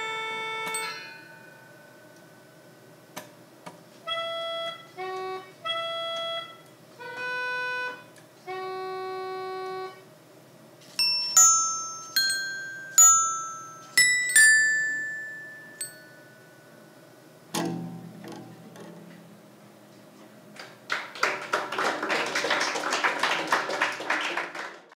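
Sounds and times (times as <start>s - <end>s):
metal xylophone notes ringing: 0.0s - 2.8s, 11.0s - 17.0s
audience applauding: 20.6s - 25.0s.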